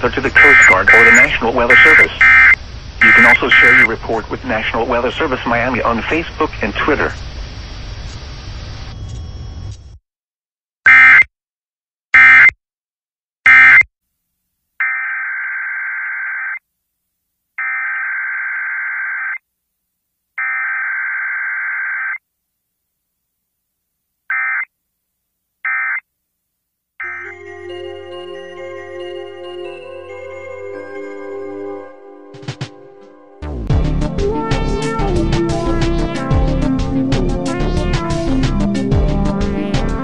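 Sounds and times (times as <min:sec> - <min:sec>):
harsh buzzing digital data bursts: 0:00.2 - 0:03.9.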